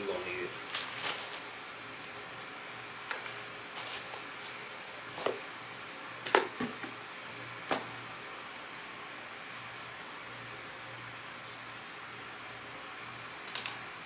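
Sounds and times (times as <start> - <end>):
low room hiss: 0.0 - 14.0.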